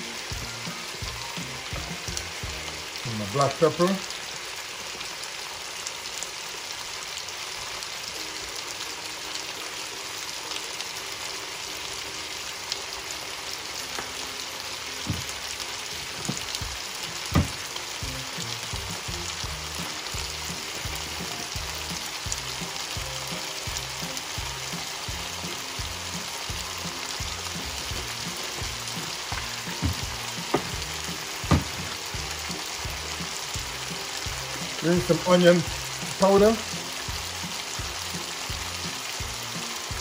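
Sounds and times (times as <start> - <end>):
music with a steady beat: 0.0 - 2.8, 16.2 - 34.8, 35.7 - 40.0
vegetables sizzling in a skillet: 0.0 - 40.0
sharp knock: 17.3 - 17.6.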